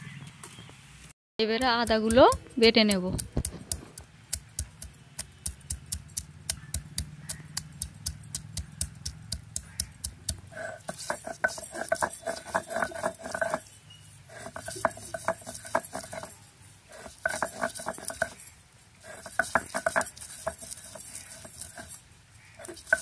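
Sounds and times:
stone roller knocking: 1.5 - 22.0, 22.6 - 23.0
stone scraping on stone: 8.8 - 23.0.

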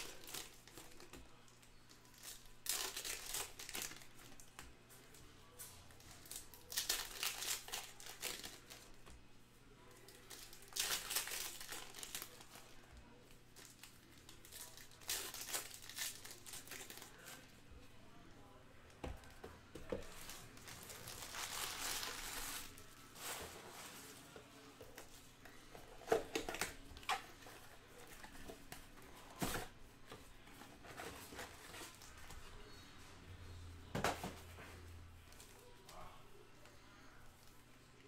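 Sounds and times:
plastic wrappers tearing and crinkling: 0.0 - 4.6, 6.0 - 9.0, 10.0 - 12.8, 13.6 - 17.5, 20.0 - 24.2.

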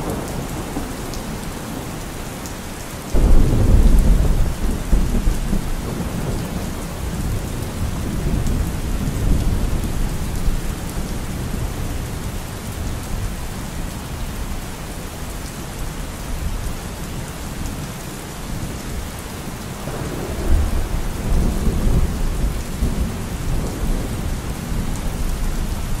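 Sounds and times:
steady rain: 0.0 - 26.0
low thunder rumbling: 3.2 - 12.1, 19.8 - 26.0.

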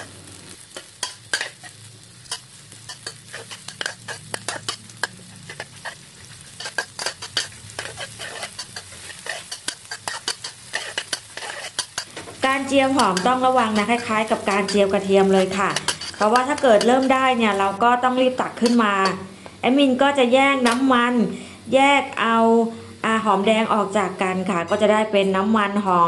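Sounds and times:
metal spatula scraping wok: 0.0 - 19.3
shallots sizzling in oil: 0.0 - 26.0.

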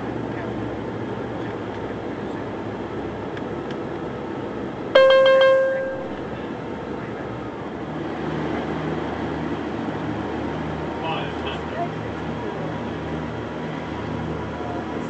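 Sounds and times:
airliner cabin engine noise: 0.0 - 15.0
electronic cabin chime: 5.0 - 6.3.

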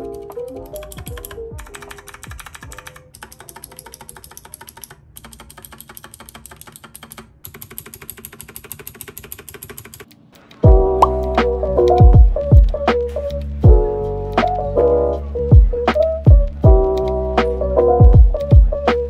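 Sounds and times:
mechanical keyboard keys clicking: 0.0 - 14.5, 16.6 - 17.4
loud background music: 10.7 - 19.0.

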